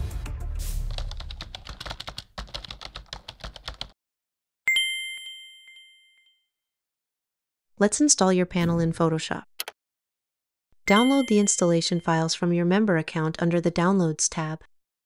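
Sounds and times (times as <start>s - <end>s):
keyboard typing clicks: 1.0s - 3.9s
bright chime ding: 4.7s - 6.4s, 10.9s - 12.0s.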